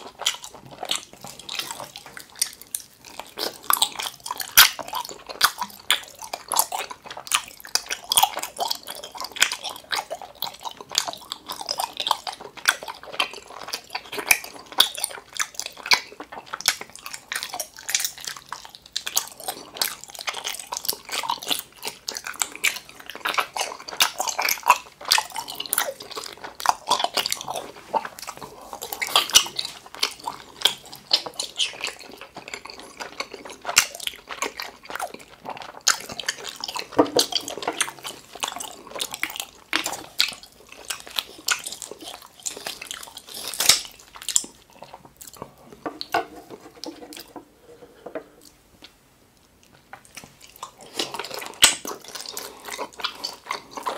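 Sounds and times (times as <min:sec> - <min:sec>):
person chewing gummy candy: 0:00.0 - 0:53.9.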